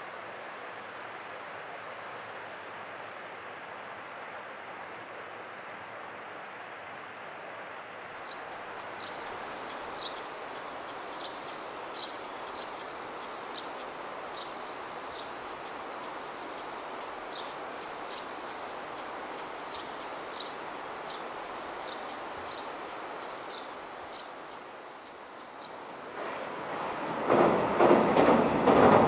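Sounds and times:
steady rushing noise: 0:08.1 - 0:29.0
insects chirping: 0:08.2 - 0:29.0.

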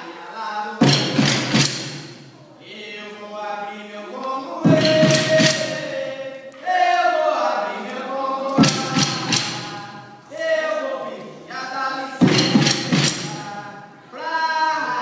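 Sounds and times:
sharp percussion strikes: 0:00.8 - 0:02.3, 0:04.7 - 0:06.0, 0:08.6 - 0:10.1, 0:12.2 - 0:13.6
person singing chant: 0:02.4 - 0:15.0.

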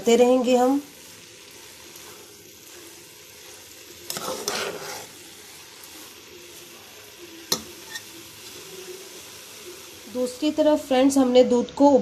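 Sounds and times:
carrots sizzling in a pot: 0:00.0 - 0:12.0
ladle stirring and scraping: 0:01.0 - 0:09.3.

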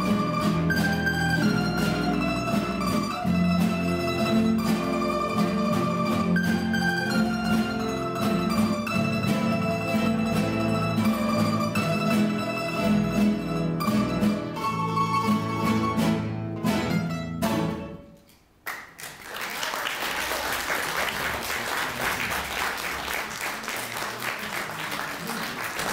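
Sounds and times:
plucked string ensemble: 0:00.0 - 0:18.2
audience applause: 0:18.7 - 0:25.9.

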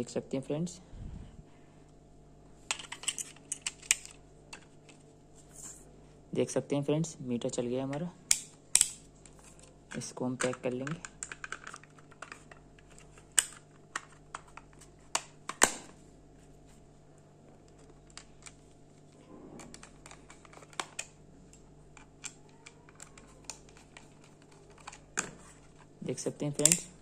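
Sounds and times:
faint steady hum: 0:00.0 - 0:27.0
plastic case clicks and snaps: 0:08.3 - 0:09.0, 0:13.3 - 0:16.0, 0:26.6 - 0:26.9.

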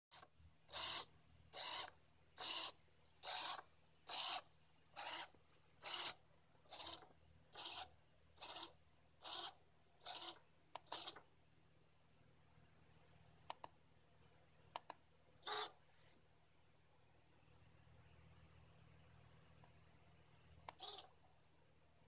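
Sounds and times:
micro servos whirring: 0:07.6 - 0:11.2, 0:15.4 - 0:15.7, 0:20.7 - 0:21.1.

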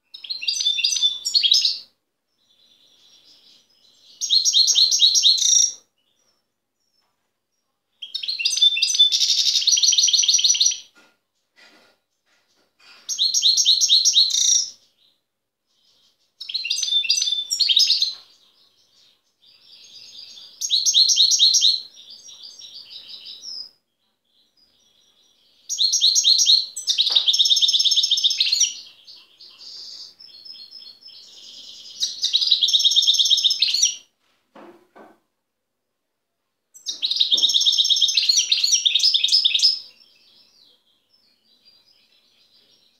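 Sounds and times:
goldfinch singing: 0:24.5 - 0:34.0, 0:36.8 - 0:42.9.

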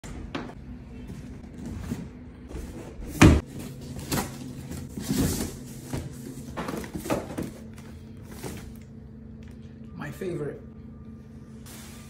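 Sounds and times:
cardboard and tape rustling: 0:01.1 - 0:08.8.

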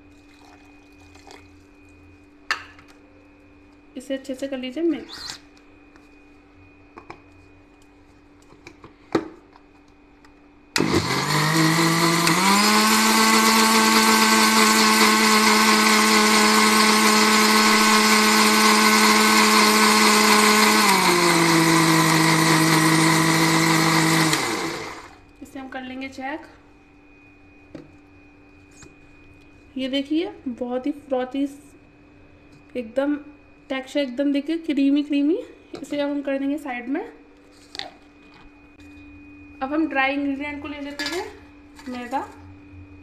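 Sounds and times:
mixer grinder running: 0:10.8 - 0:25.2.

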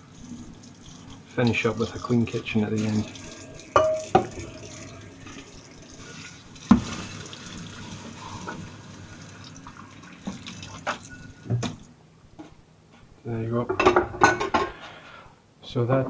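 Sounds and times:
sponge scrubbing saucepan: 0:00.0 - 0:11.4
tap running into sink: 0:02.8 - 0:05.5, 0:06.6 - 0:07.6, 0:09.6 - 0:11.8
pan knocking against sink: 0:03.8 - 0:04.6.

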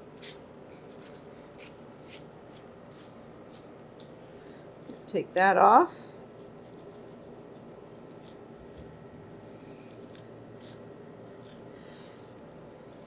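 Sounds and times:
knife scraping meat: 0:00.0 - 0:04.2, 0:06.2 - 0:09.0, 0:09.6 - 0:13.0
faint room noise: 0:00.0 - 0:13.0.

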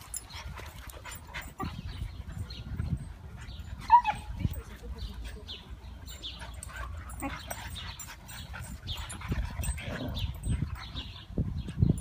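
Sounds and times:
dogs panting: 0:00.0 - 0:12.0
dogs whining: 0:00.0 - 0:12.0
low rumbling growls: 0:06.9 - 0:11.2.

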